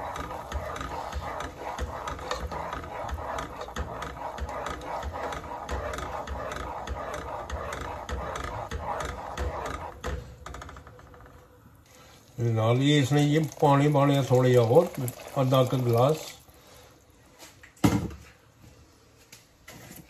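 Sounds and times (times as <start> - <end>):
spatula scraping a saucepan: 0.0 - 11.2.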